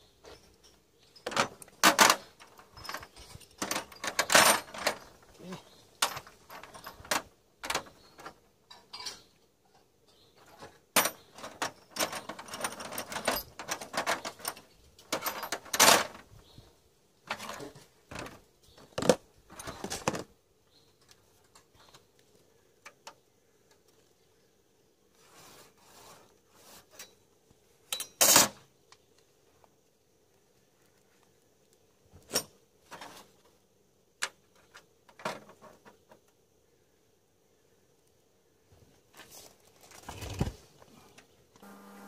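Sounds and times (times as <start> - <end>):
metal rods clinking and rattling: 0.2 - 16.3, 27.9 - 28.6.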